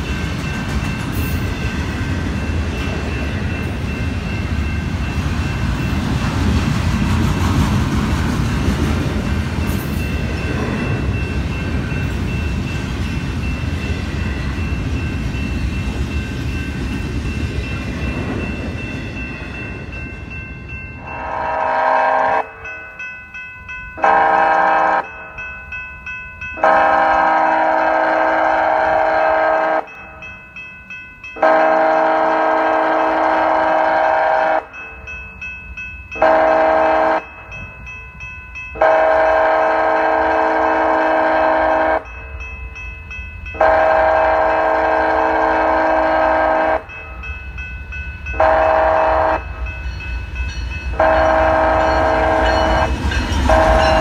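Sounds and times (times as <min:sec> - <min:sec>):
crossing bells ringing: 0:00.0 - 0:54.0
train rumble: 0:00.0 - 0:54.0
locomotive air horn blasts: 0:21.1 - 0:22.6, 0:24.0 - 0:25.1, 0:26.6 - 0:29.9, 0:31.4 - 0:34.7, 0:36.2 - 0:37.3, 0:38.8 - 0:42.0, 0:43.6 - 0:46.9, 0:48.4 - 0:49.5, 0:50.9 - 0:52.9, 0:53.5 - 0:54.0.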